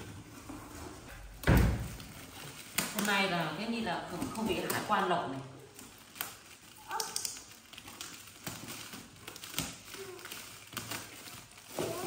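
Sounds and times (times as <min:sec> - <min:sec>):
plastic crinkling: 0:00.0 - 0:12.0
scissors snipping plastic: 0:04.1 - 0:12.0.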